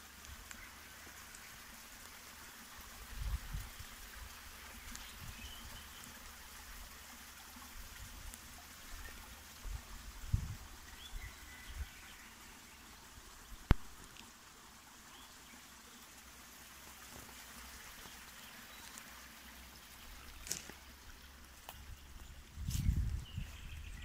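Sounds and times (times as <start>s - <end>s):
faint outdoor hiss: 0.0s - 24.0s
faint bird chirps: 10.9s - 12.9s.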